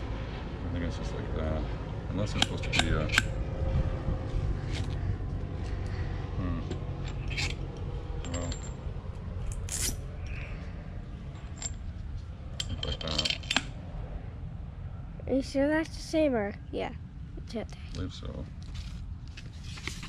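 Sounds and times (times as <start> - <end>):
low background rumble: 0.0 - 20.0
small metal parts clinking: 6.7 - 7.6, 8.2 - 8.8, 11.3 - 13.8.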